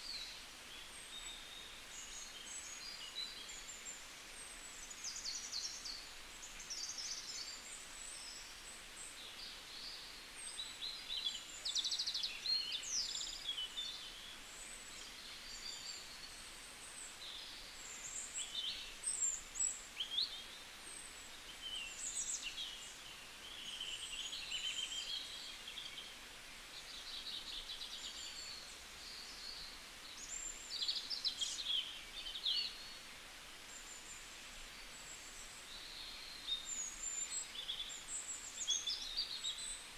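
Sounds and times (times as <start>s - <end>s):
steady low hiss: 0.0s - 39.9s.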